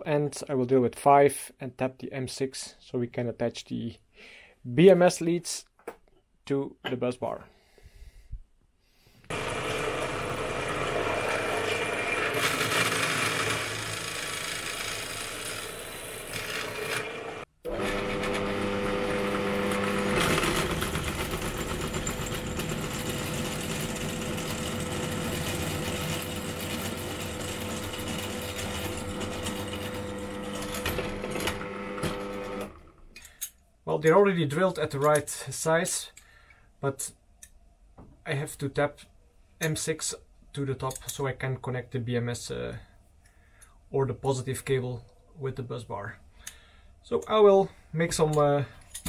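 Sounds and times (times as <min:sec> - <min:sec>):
drill press drilling metal: 0:09.3 - 0:32.7.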